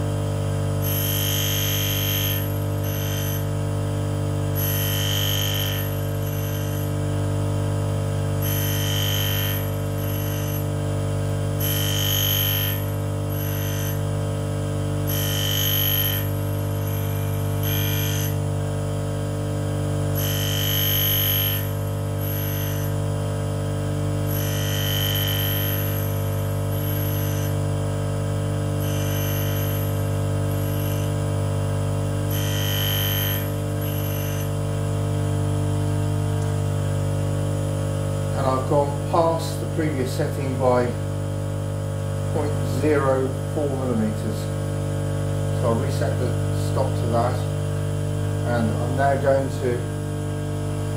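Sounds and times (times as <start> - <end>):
grinder motor humming: 0.0 - 50.9
high-pitched grinding wheel passes: 0.8 - 3.5, 4.6 - 6.9, 8.4 - 10.7, 11.6 - 14.0, 15.1 - 18.4, 20.2 - 23.0, 24.3 - 27.6, 28.8 - 31.2, 32.3 - 34.6.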